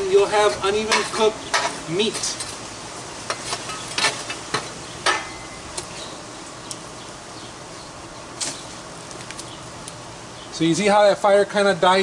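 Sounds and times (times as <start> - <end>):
metal shovel scraping charcoal: 0.0 - 6.1, 8.4 - 8.8
burning coals hissing: 0.0 - 12.0.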